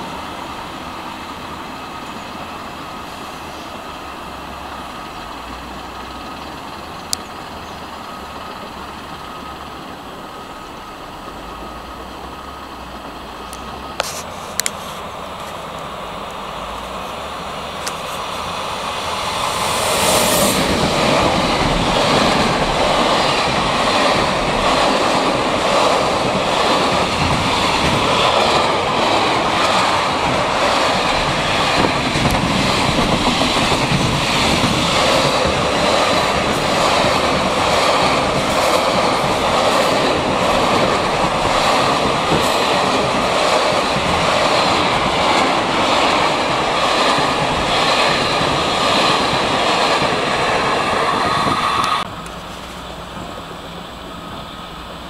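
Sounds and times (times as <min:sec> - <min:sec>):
freight train locomotive passing: 0:00.0 - 0:55.0
wagons rolling over rails: 0:20.7 - 0:51.2.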